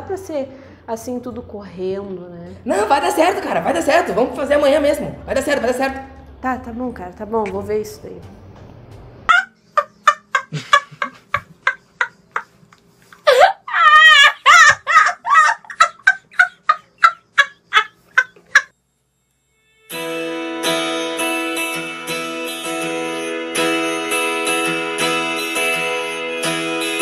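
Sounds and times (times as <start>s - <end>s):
boy laughing loudly: 9.3s - 12.5s, 13.2s - 18.7s
acoustic guitar music: 19.9s - 27.0s.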